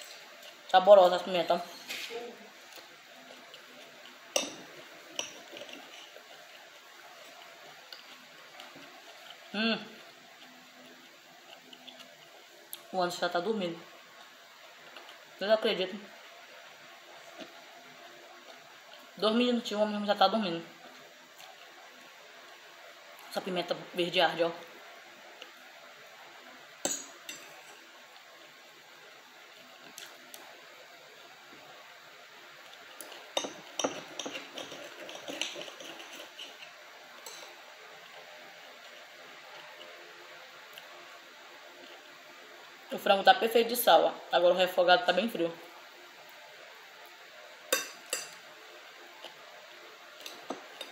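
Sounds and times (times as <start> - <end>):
soft chewing: 0.0 - 12.9, 13.9 - 15.4, 16.2 - 19.2, 20.7 - 23.3, 24.9 - 31.8, 32.4 - 42.4, 46.2 - 50.9
cutlery clinking on glass plate: 47.7 - 48.4.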